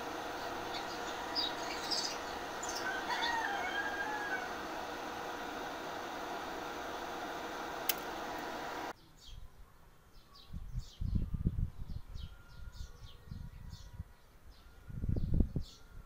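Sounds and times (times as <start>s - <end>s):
steady hiss: 0.0s - 8.9s
small bird chirping: 0.4s - 4.3s.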